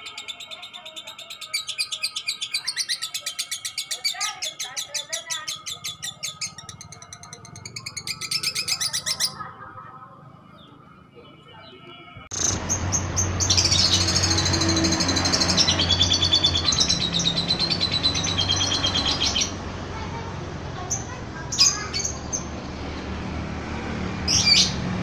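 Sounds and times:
lovebird chattering: 0.0 - 9.5.

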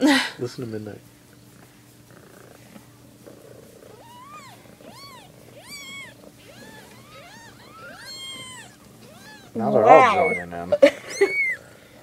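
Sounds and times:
faint low hum: 0.0 - 12.0
kittens mewing: 3.7 - 12.0.

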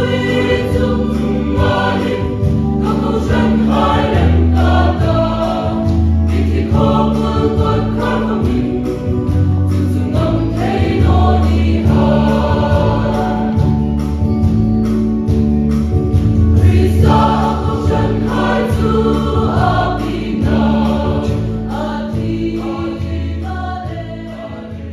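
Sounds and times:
choir singing gospel: 0.0 - 14.6, 16.1 - 24.9
instrumental accompaniment: 0.0 - 24.9.

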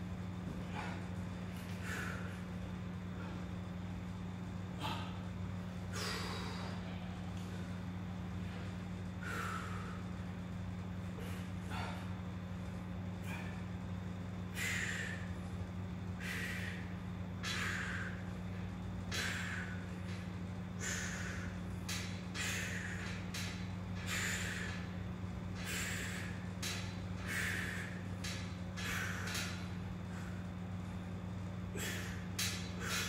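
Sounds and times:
steady low hum: 0.0 - 33.0
man's sharp forceful breaths: 14.5 - 15.5, 16.1 - 18.4, 19.0 - 31.1, 31.7 - 33.0.

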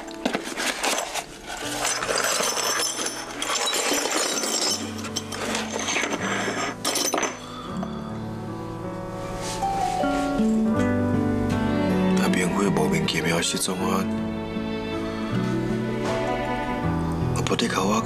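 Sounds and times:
cardboard box rustling: 0.0 - 2.0
soft background music: 0.0 - 18.0
broken ceramic clinking: 1.7 - 7.6.

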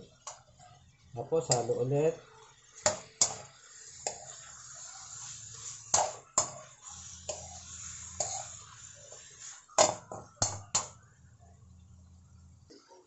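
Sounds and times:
metal spoon scraping a wok: 2.7 - 11.0
low steady hum: 10.2 - 12.8.

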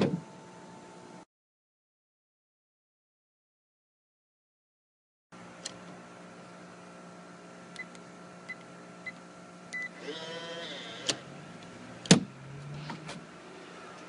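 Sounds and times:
lock motor whirring: 9.7 - 13.3.

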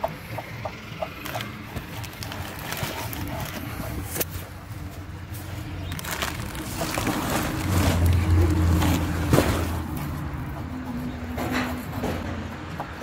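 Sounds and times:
plastic shredder running: 1.2 - 4.2, 5.9 - 9.7.

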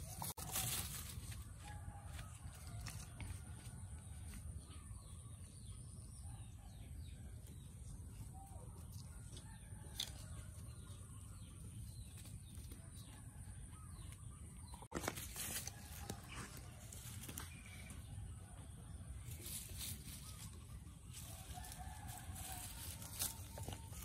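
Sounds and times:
rustling noise: 14.8 - 17.8.

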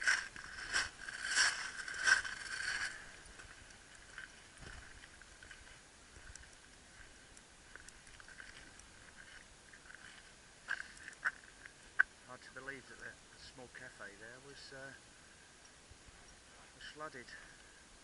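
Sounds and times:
crunching scrape: 0.0 - 5.8, 8.2 - 11.5
light footsteps: 0.0 - 12.1
faint ticks on gravel: 0.0 - 12.8.

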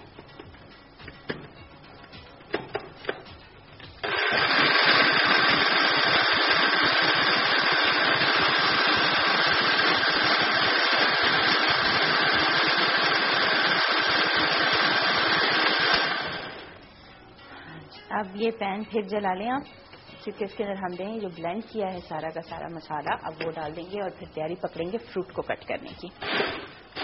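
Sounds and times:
electric blender running: 3.9 - 16.8, 26.2 - 27.0.

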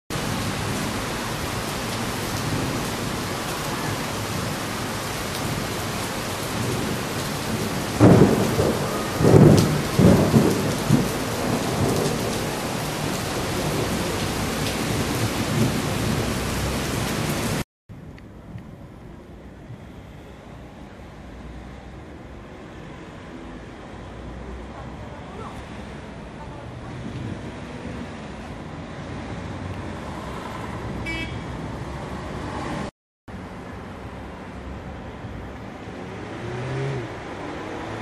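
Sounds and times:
rain hissing on street: 0.1 - 17.6, 18.7 - 38.0
thunder rumbles: 0.1 - 17.6, 26.8 - 28.2
thunderclap: 6.5 - 16.3.

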